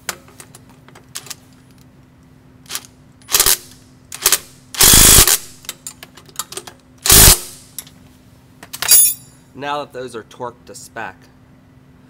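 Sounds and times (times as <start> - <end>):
wrench and socket clinking: 8.8 - 9.4.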